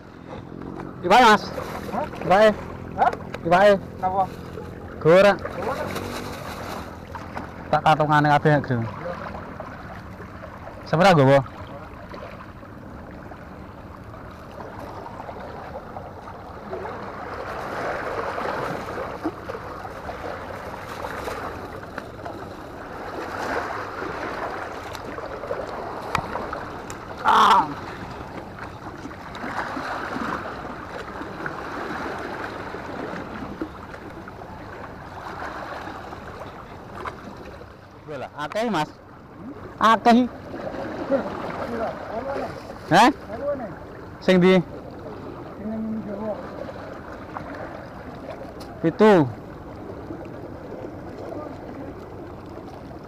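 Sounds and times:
sea waves washing against rocks: 0.6s - 7.7s.

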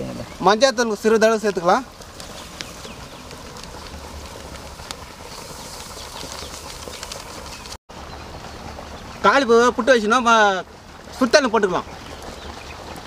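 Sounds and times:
steady hiss: 0.0s - 7.8s.

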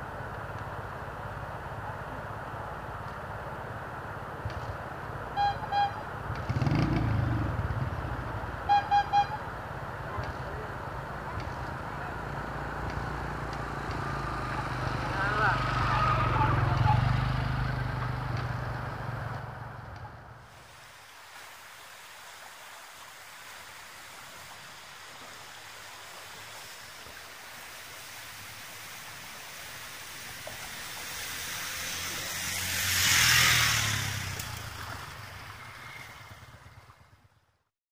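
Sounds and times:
water rushing: 5.2s - 19.1s, 20.3s - 37.5s
scooter engine humming: 10.0s - 20.4s, 29.6s - 37.3s
loud water splashing: 20.5s - 37.2s.

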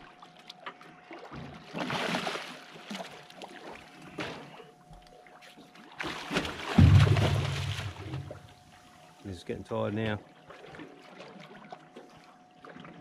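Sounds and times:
shark splashing water: 6.0s - 8.5s.

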